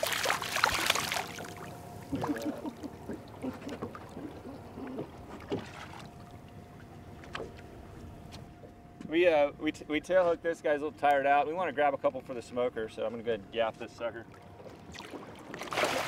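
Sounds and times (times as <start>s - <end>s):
fish thrashing and splashing: 0.0s - 1.6s, 14.8s - 16.0s
water: 0.0s - 16.0s
wind: 0.0s - 16.0s
faint wavering sounds: 1.3s - 10.8s.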